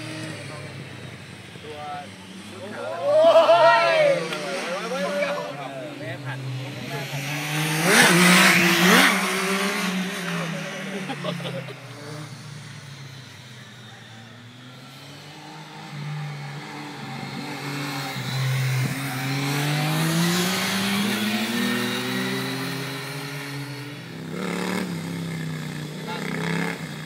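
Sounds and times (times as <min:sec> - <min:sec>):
distant motorcycles: 0:00.0 - 0:27.0
motorcycle accelerating past: 0:02.2 - 0:27.0.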